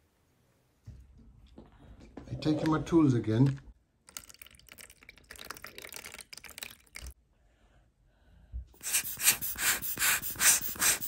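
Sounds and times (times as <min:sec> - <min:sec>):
water splashing and trickling: 0:02.3 - 0:07.2
rubber bulb air blower puffing: 0:08.8 - 0:11.0.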